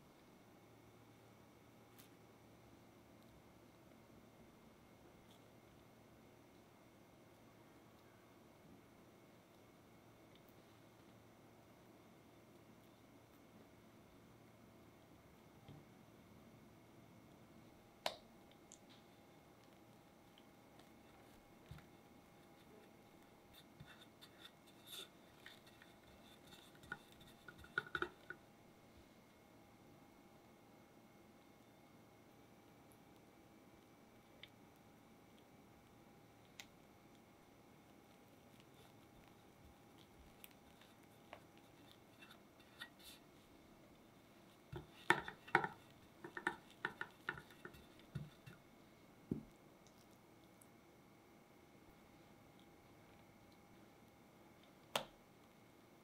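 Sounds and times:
spatula scraping cream: 20.8 - 28.4, 38.0 - 48.7.

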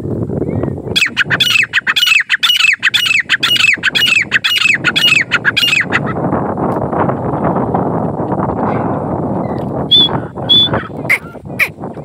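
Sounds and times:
francolin calling: 0.5 - 6.0, 9.9 - 11.7.

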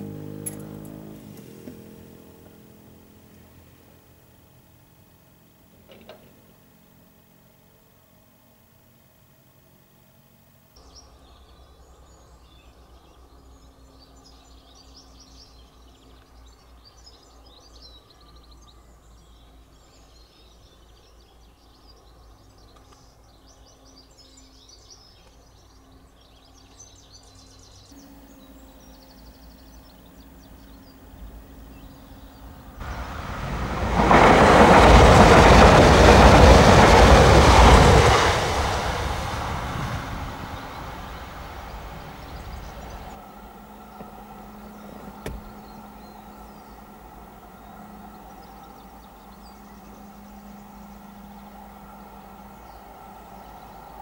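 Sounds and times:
birds chirping: 0.0 - 8.7, 9.5 - 54.0
passenger train passing: 28.0 - 54.0.

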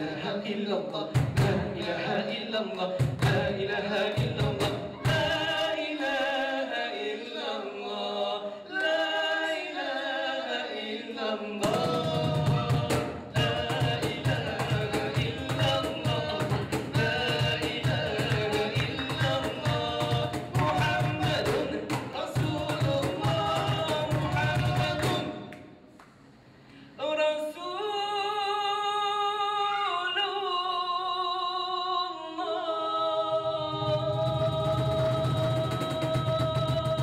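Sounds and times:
men singing devotional song: 0.0 - 25.5, 27.0 - 37.0
cajon drum beat: 1.1 - 1.9, 3.0 - 5.7, 11.6 - 25.5, 34.2 - 37.0.

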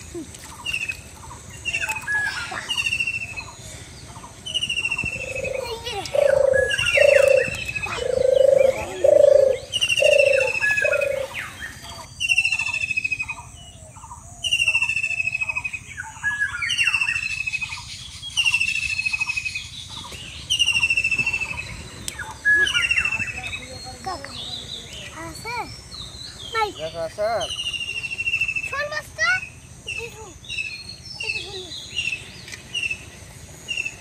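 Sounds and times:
bird trilling phrase: 4.7 - 13.5.

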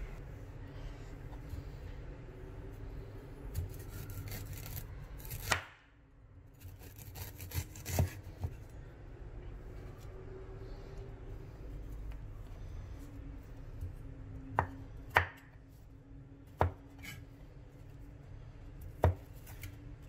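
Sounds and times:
knife scraping ginger skin: 3.4 - 5.6, 6.6 - 8.5.

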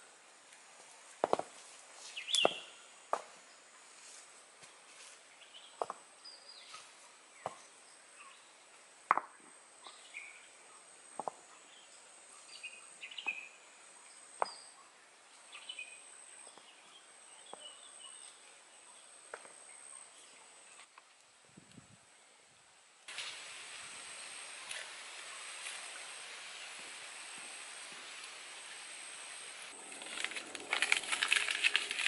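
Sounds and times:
birds chirping: 2.1 - 3.6
high insect drone: 23.1 - 31.9
rocks knocking together: 29.8 - 32.0.

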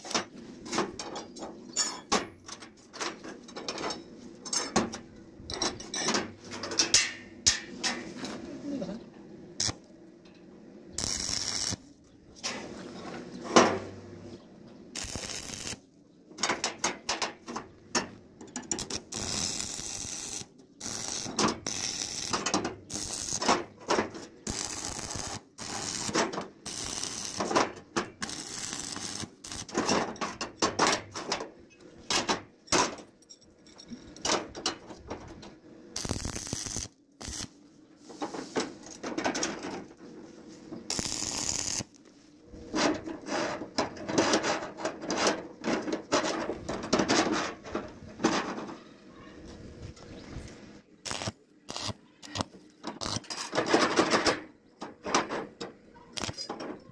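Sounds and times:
arc welding crackling: 9.6 - 9.9, 11.0 - 11.8, 15.0 - 15.8, 18.6 - 30.0, 36.0 - 37.6, 40.9 - 42.0, 51.0 - 53.3, 56.1 - 56.6.

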